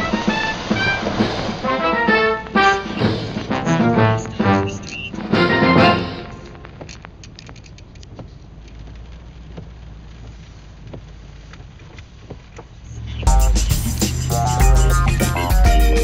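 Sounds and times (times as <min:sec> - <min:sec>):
raindrops ticking on car roof: 0:00.0 - 0:02.8, 0:06.5 - 0:13.8
car driving on wet road: 0:00.0 - 0:03.6, 0:04.9 - 0:13.3
music: 0:00.0 - 0:06.6, 0:13.3 - 0:16.0.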